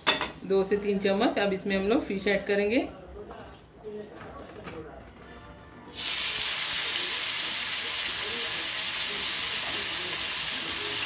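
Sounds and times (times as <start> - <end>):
fish sizzling in hot oil: 5.9 - 11.0.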